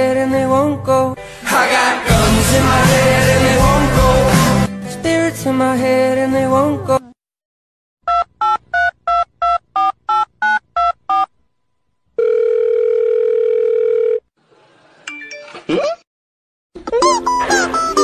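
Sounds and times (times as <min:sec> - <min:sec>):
steady phone tone: 0:12.2 - 0:14.3.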